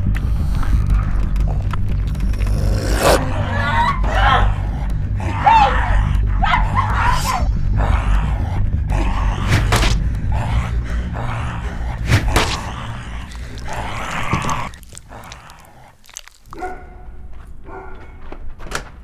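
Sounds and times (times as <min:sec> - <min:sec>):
low drone: 0:00.0 - 0:15.9
pitched cries: 0:03.2 - 0:08.4.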